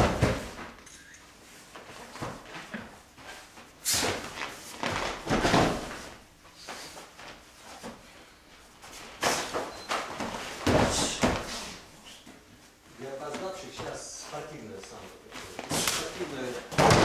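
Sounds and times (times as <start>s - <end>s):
bodies thudding on mats: 0.0s - 0.8s, 1.7s - 6.3s, 8.8s - 11.9s, 15.3s - 17.0s.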